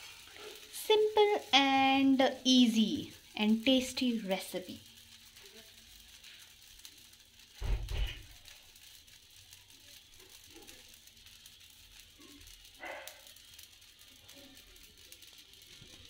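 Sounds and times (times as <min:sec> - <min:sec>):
pancake sizzling in a pan: 0:00.0 - 0:16.0
low thump and rattle: 0:07.6 - 0:08.3.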